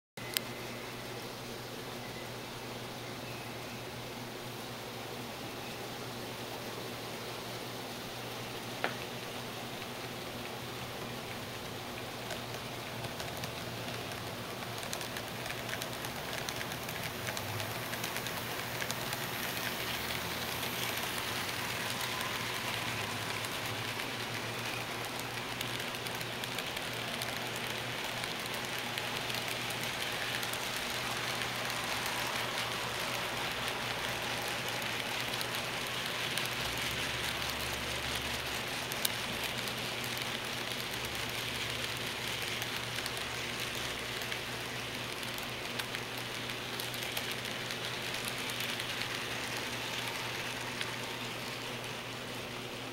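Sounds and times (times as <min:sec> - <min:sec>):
model train wheels clattering: 0:11.6 - 0:52.4.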